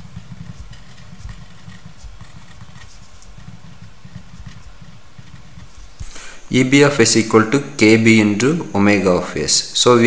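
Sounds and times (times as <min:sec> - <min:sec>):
pen scratching on paper: 0:00.0 - 0:07.1.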